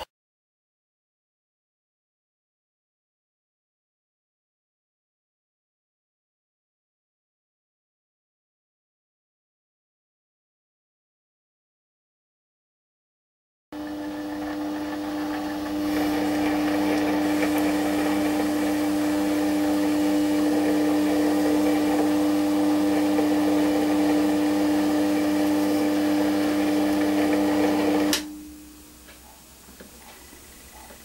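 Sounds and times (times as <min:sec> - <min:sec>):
metal lathe whining: 0:13.8 - 0:28.3.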